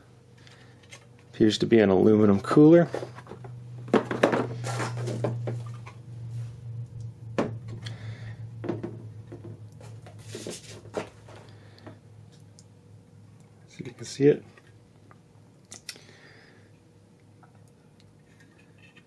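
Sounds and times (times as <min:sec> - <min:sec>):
knocks on wooden tabletop: 0:08.6 - 0:09.6.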